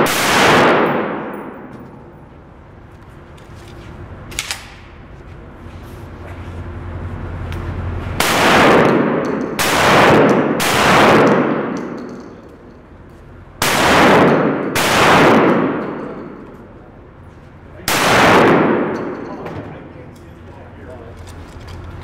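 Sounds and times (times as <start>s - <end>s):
shotgun shots echoing indoors: 0.0s - 2.2s, 8.2s - 12.8s, 13.6s - 16.8s, 17.8s - 19.5s.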